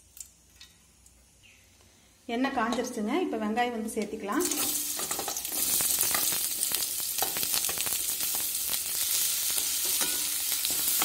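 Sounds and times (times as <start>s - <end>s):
onions sizzling in hot oil: 4.3s - 11.0s
spatula scraping a pan: 9.1s - 11.0s.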